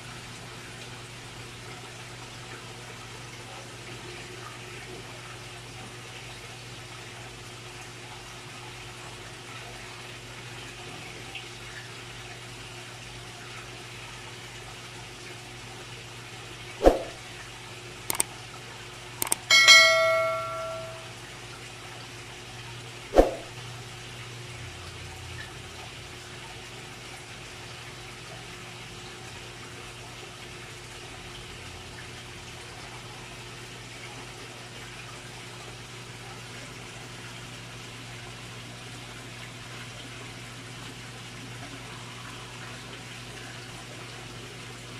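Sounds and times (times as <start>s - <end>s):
water splashing into pond: 16.8s - 17.2s, 23.2s - 23.5s
bell-like metallic ring: 19.2s - 21.1s.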